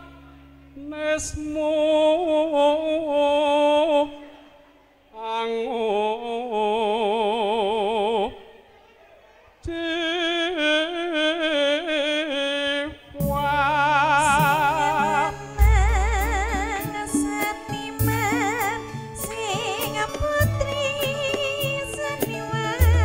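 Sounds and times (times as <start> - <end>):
person singing with vibrato: 0.0 - 8.7, 9.6 - 23.0
band instruments: 13.1 - 23.0.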